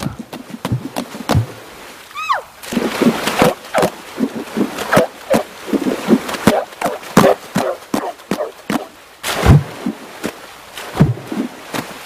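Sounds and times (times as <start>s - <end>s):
hands drumming on water: 0.0s - 1.6s, 3.0s - 9.6s.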